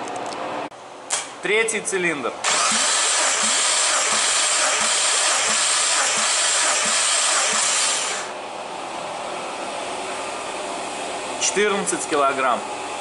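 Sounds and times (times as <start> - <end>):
engine cranking whir: 2.4 - 8.3.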